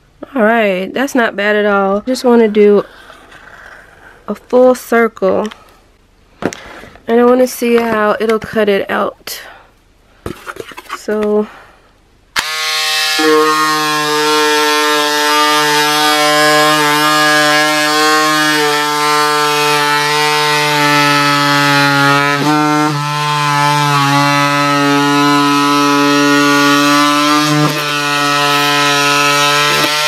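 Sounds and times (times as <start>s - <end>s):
electric scissors motor whine: 12.4s - 30.0s.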